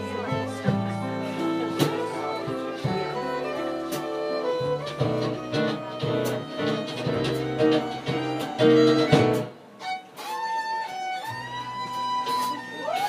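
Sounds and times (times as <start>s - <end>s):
strummed guitar chords: 0.0s - 9.6s.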